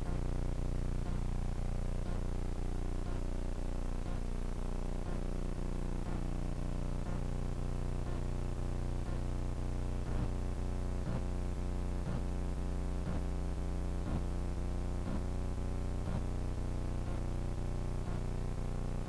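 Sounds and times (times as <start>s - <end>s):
faint ticks: 0.0s - 0.3s, 1.0s - 1.3s, 2.0s - 2.3s, 3.0s - 3.3s, 4.0s - 4.3s, 5.0s - 5.3s, 6.0s - 6.3s, 7.0s - 7.3s, 8.0s - 8.4s, 9.0s - 9.3s, 10.0s - 10.4s, 11.0s - 11.3s, 12.0s - 12.3s, 13.0s - 13.3s, 14.0s - 14.3s, 15.0s - 15.3s, 16.0s - 16.3s, 17.0s - 17.3s, 18.0s - 18.3s
steady low tonal hum: 0.0s - 19.0s.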